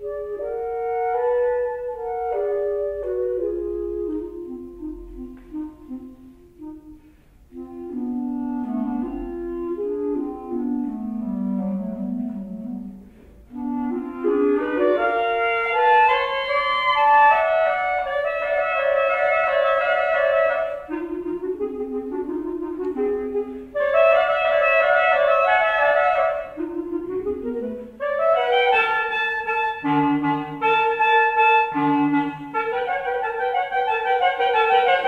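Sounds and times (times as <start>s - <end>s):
clarinet duet: 0.0s - 35.0s.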